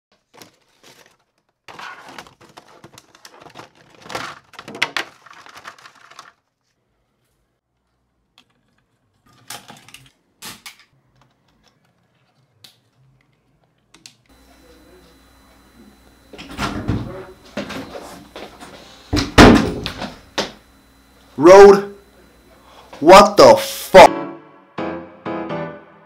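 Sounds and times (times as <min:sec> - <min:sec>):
packaging rustling and clicking: 0:00.2 - 0:06.5.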